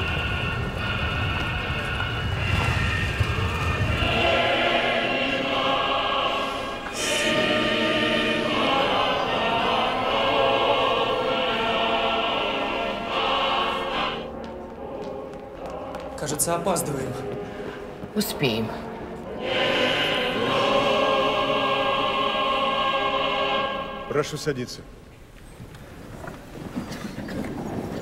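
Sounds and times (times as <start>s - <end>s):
car engine rumble: 0.0s - 4.9s
choir singing held chords: 0.0s - 25.1s.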